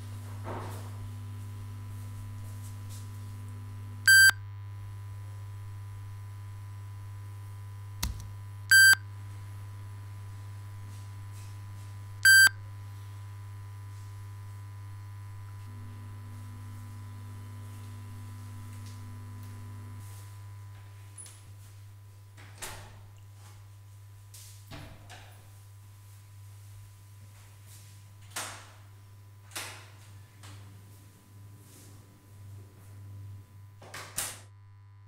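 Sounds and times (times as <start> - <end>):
low electrical hum: 0.0 - 35.0
short electronic beeps: 4.1 - 4.4, 8.7 - 9.0, 12.2 - 12.6.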